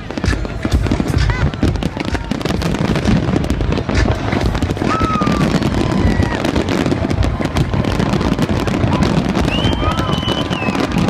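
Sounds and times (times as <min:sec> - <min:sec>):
fireworks bangs and crackles: 0:00.0 - 0:11.0
firework whistle: 0:04.6 - 0:11.0.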